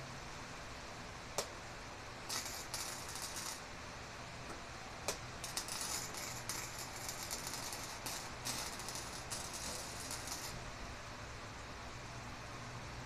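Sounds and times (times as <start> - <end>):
welding arc crackling: 2.2 - 3.8, 5.1 - 10.7.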